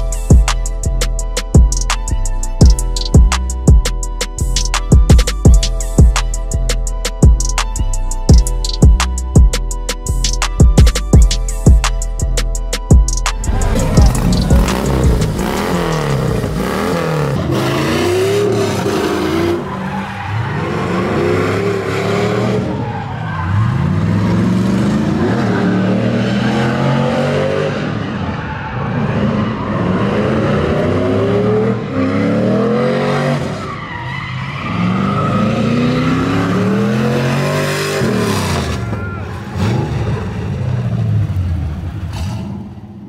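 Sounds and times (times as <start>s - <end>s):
car engine revving: 13.3s - 33.7s, 34.3s - 43.0s.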